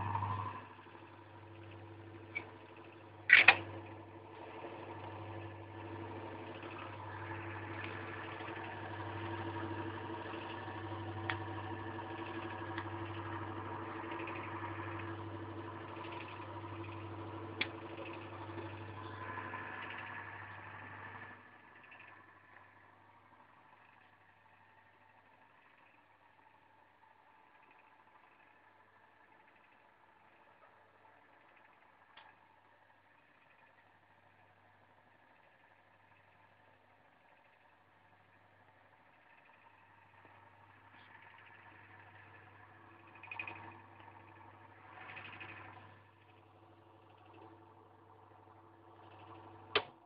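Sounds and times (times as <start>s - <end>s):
electric motor humming and whining: 0.0s - 26.4s.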